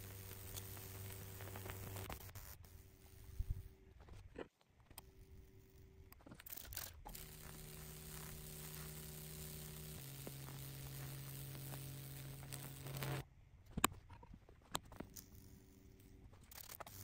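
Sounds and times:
hissing sizzling crackle: 0.0s - 3.8s, 6.5s - 13.2s
faint electrical hum: 0.0s - 17.0s.

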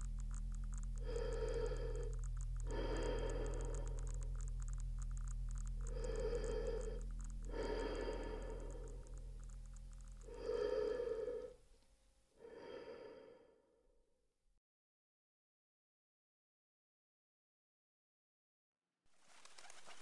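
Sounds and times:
faint ringing tones: 0.0s - 11.6s
fast ticking: 0.0s - 11.6s
low electronic hum: 0.0s - 11.6s.

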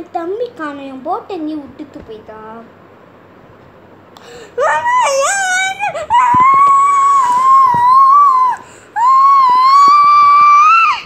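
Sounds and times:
young boy wailing: 4.6s - 11.0s.

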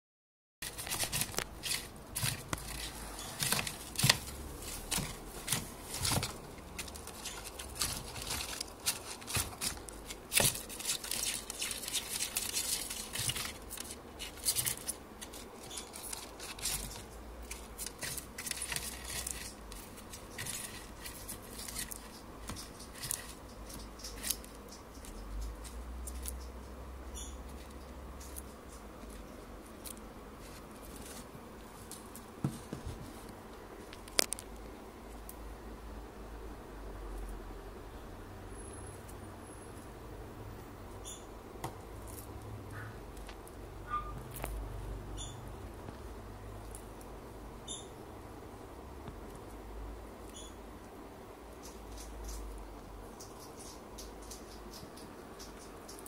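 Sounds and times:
lizard crunching insect: 0.6s - 26.6s, 33.9s - 34.6s.

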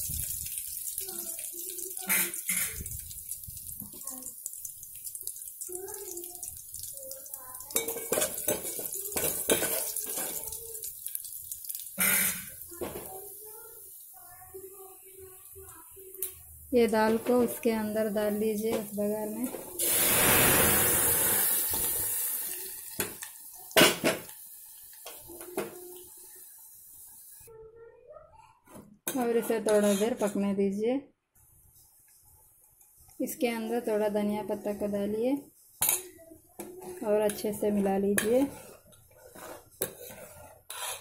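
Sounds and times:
hot oil sizzling: 0.0s - 27.5s, 37.0s - 41.0s
metal ladle clinking on pot: 7.8s - 10.4s
ladle scraping metal pot: 29.4s - 30.3s, 36.9s - 41.0s.

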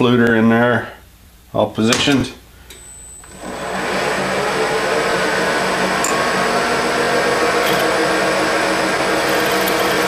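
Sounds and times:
faint high whine: 2.6s - 10.0s
milling machine cutting steel: 3.3s - 10.0s.

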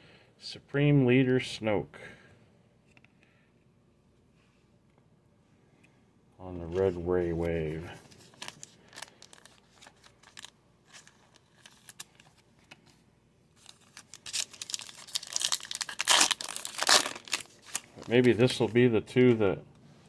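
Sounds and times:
trading cards shuffling: 6.6s - 13.0s, 13.6s - 19.4s
card wrapper crinkling and tearing: 7.9s - 12.8s, 13.6s - 18.8s.

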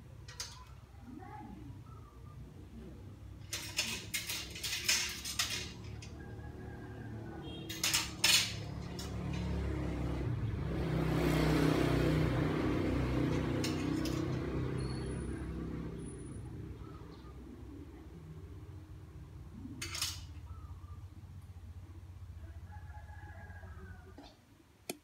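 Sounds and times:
clothes hangers clinking: 0.2s - 0.9s, 3.4s - 6.2s, 7.4s - 10.0s, 13.2s - 15.0s, 19.8s - 20.5s.

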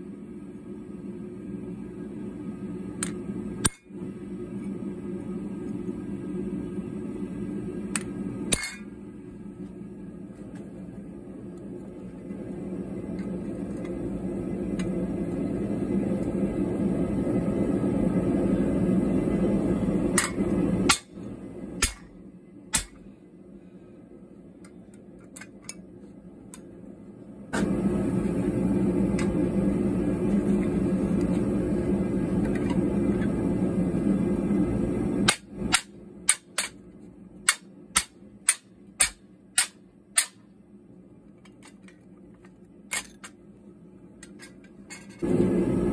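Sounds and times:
hammer striking steel: 21.8s - 23.0s, 37.5s - 40.4s.

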